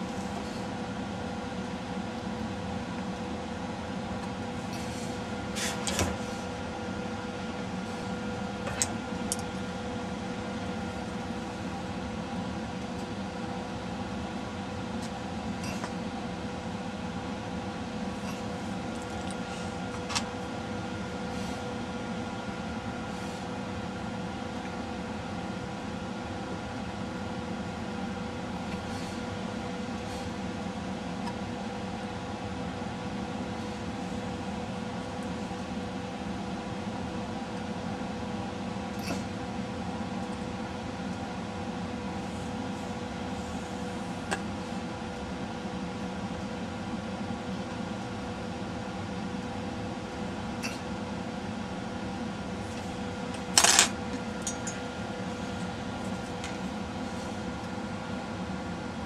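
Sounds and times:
steady mechanical hum: 0.0s - 59.0s
tools clattering down: 53.5s - 54.8s.

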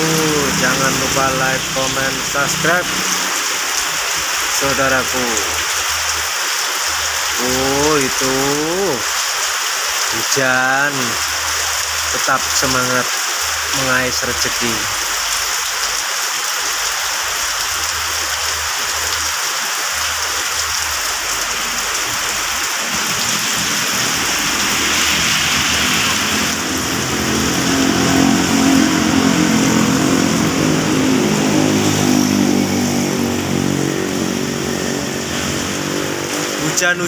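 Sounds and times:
heavy rain pouring: 0.0s - 37.0s
motorcycle engine passing: 22.8s - 36.7s.

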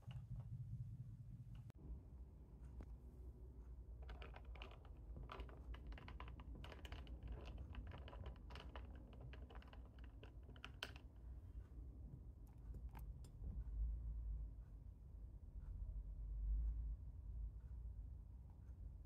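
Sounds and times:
faint keyboard typing: 3.7s - 11.6s.

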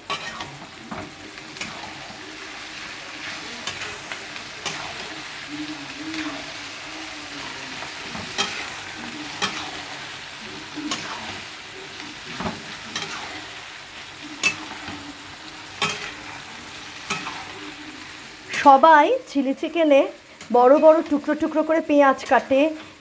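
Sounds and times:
metal spatula scraping a pan: 0.0s - 0.7s, 1.5s - 2.2s, 2.8s - 6.6s, 7.4s - 11.4s, 12.3s - 13.6s, 14.3s - 15.1s, 15.7s - 17.8s
vegetables sizzling in oil: 0.0s - 23.0s.

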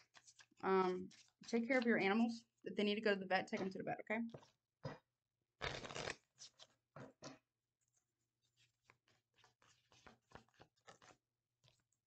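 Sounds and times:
cards being shuffled: 5.6s - 7.4s, 8.9s - 11.2s.

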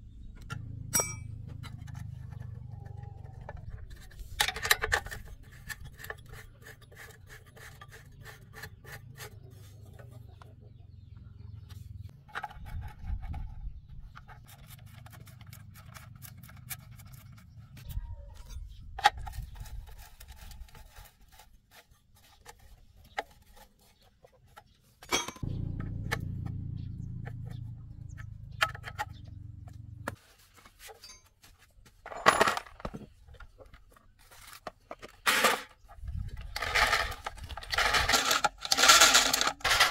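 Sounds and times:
small metal parts clinking: 32.0s - 33.5s, 35.1s - 39.9s.

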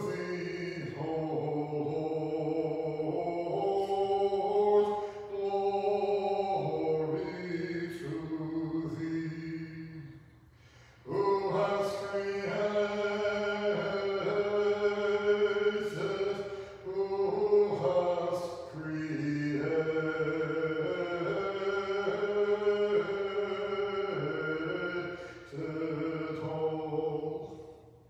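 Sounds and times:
voices chanting a hymn: 0.0s - 28.0s
singers breathing: 5.0s - 5.3s, 10.3s - 11.1s, 16.4s - 16.9s, 25.1s - 25.5s.

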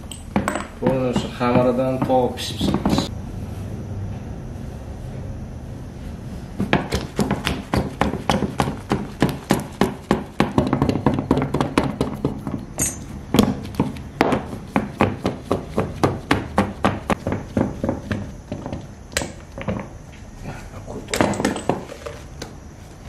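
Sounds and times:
hands thumping dough: 0.3s - 3.1s, 6.6s - 12.6s, 13.3s - 19.9s.

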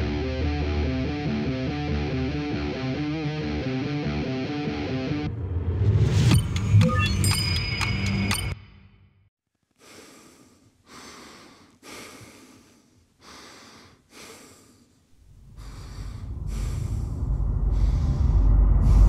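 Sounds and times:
low rumble: 5.2s - 6.9s, 15.2s - 19.0s.

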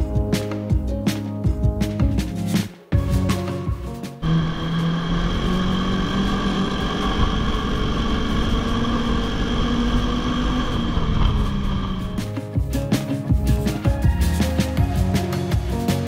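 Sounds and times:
snowmobile engine revving: 4.2s - 12.2s.

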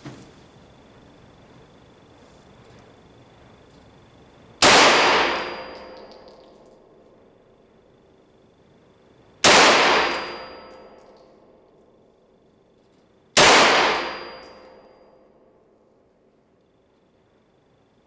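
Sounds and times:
gunshots echoing indoors: 4.6s - 6.6s, 9.4s - 11.3s, 13.3s - 15.2s.

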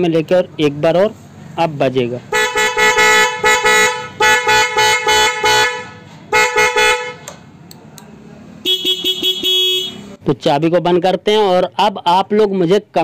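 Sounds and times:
motorcycle horn tooting: 2.3s - 7.3s, 8.6s - 10.1s.

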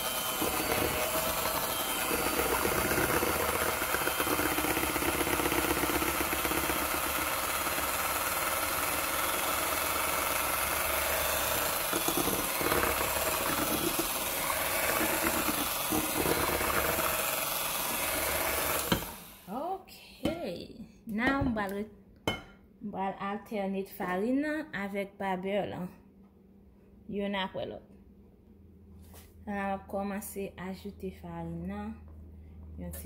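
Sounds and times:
electric hand mixer whirring: 0.0s - 19.5s.

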